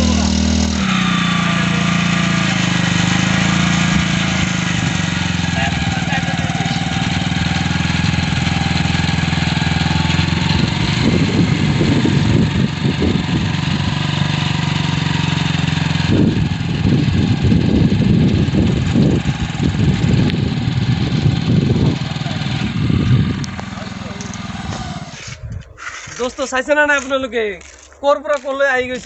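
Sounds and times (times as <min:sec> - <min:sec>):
low rumbling bursts: 0:00.0 - 0:25.8
motorcycle engine under load: 0:00.0 - 0:29.0.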